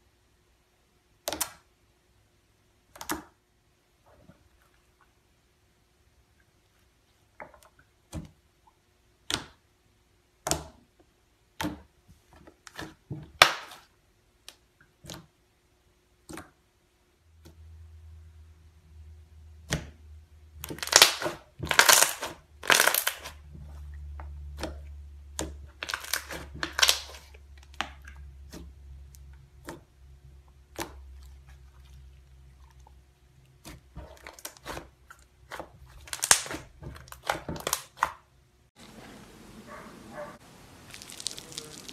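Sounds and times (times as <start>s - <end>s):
slime squelching: 20.6s - 39.0s, 39.7s - 41.9s
slime popping and clicking: 40.9s - 41.9s.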